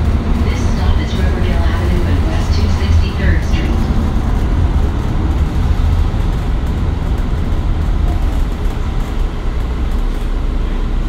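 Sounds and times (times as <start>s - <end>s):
bus diesel engine rumble: 0.0s - 11.0s.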